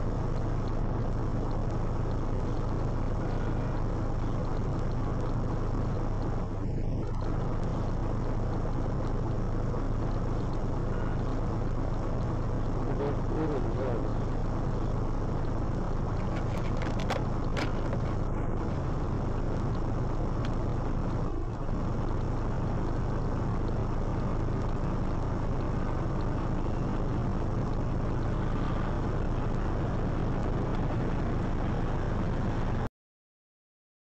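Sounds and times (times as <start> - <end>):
low engine hum: 0.0 - 32.9.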